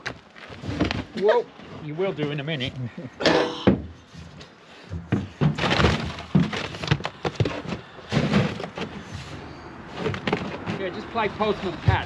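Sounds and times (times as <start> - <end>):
boots on aluminium body: 3.2 - 12.0.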